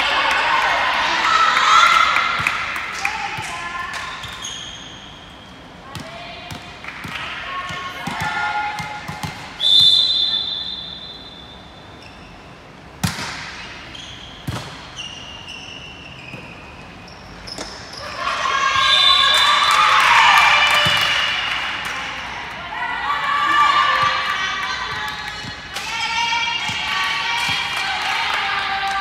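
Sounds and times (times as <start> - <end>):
players shouting and cheering: 0.0 - 4.0, 18.0 - 29.0
referee's whistle: 9.6 - 11.9, 18.7 - 19.7
volleyball being struck: 13.0 - 13.7.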